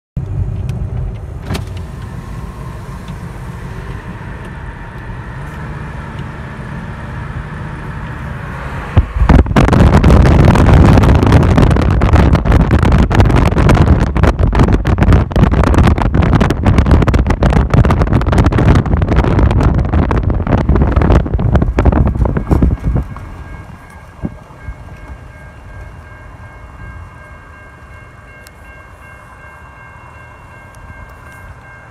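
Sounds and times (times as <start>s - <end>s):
car road rumble: 0.2s - 31.9s
wind buffeting microphone: 0.2s - 31.9s.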